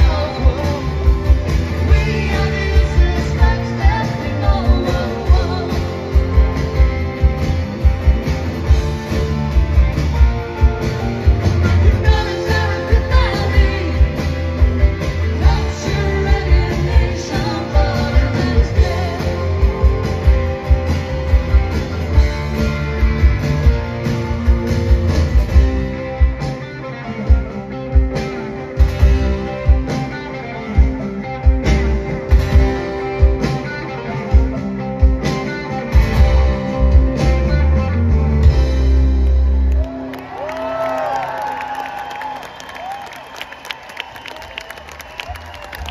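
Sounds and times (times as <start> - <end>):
rock band playing: 0.0 - 45.9
crowd cheering: 17.0 - 23.0, 39.0 - 45.9.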